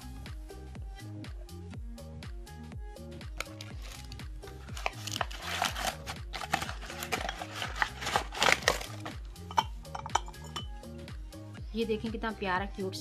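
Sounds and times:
background music with bass line: 0.0s - 13.0s
plastic and paper rustling: 3.4s - 9.2s.

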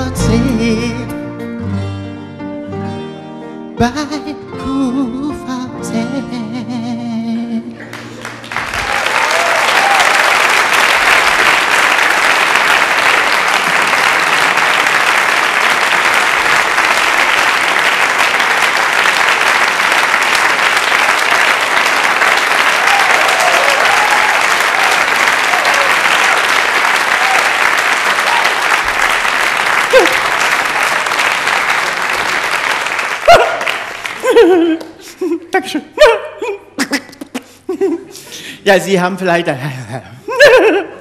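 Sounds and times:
audience applauding: 7.8s - 35.2s.

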